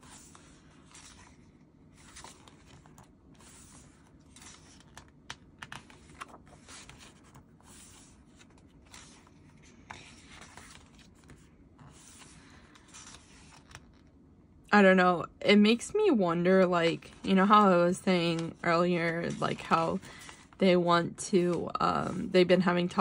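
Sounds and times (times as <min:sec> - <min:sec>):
paper rustling and sliding: 0:00.0 - 0:14.0, 0:17.1 - 0:20.6.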